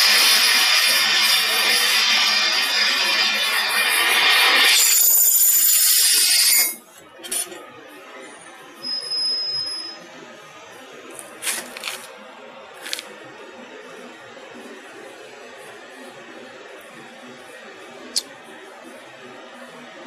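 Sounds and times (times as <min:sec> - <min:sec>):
drill cutting into steel: 0:00.0 - 0:06.8.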